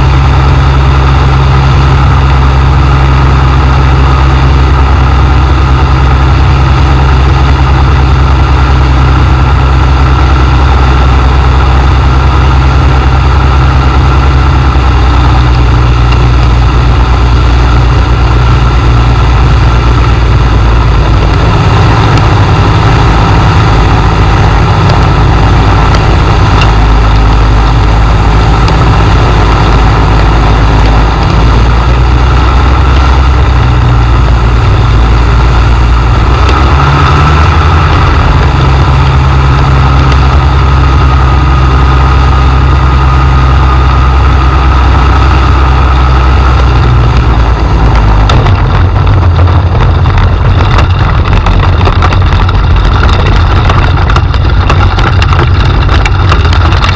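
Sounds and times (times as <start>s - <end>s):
light aircraft engine running: 0.0s - 56.9s
wheels rattling on grass: 43.8s - 56.9s.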